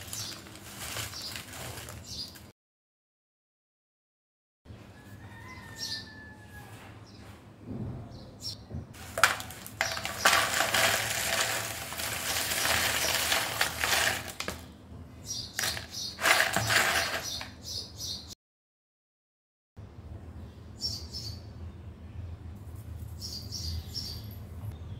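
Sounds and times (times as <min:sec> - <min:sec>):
chips pouring into plastic bowl: 0:00.0 - 0:02.4, 0:09.0 - 0:14.7, 0:15.6 - 0:17.5.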